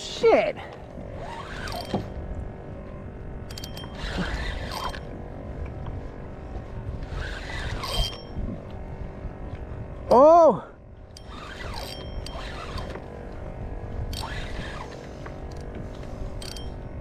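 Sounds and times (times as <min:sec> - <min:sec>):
wind rumble on microphone: 0:00.6 - 0:17.0
fishing reel drag buzzing: 0:01.1 - 0:02.2, 0:03.4 - 0:05.2, 0:07.0 - 0:08.4, 0:11.1 - 0:13.1, 0:14.0 - 0:16.8.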